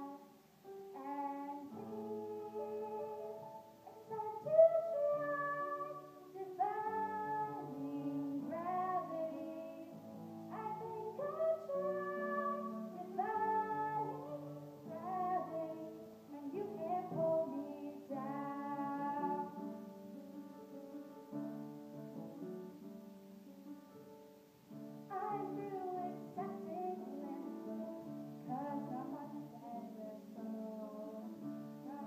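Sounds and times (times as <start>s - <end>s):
girl singing solo: 4.0s - 9.9s, 10.5s - 19.7s.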